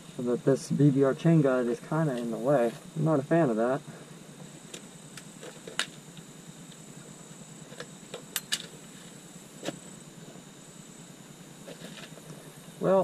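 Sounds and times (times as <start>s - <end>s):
faint steady hiss: 0.0s - 13.0s
motorcycle chain clicks and knocks: 7.7s - 8.8s.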